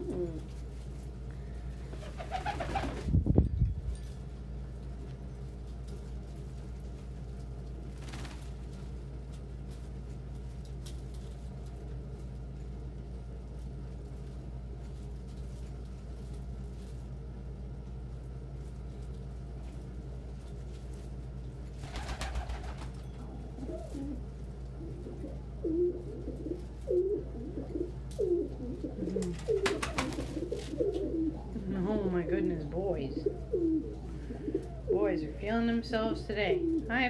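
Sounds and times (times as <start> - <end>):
pigeons cooing: 0.0 - 0.6, 1.9 - 3.1, 21.8 - 35.5, 36.4 - 37.0
steady low hum: 0.0 - 37.0.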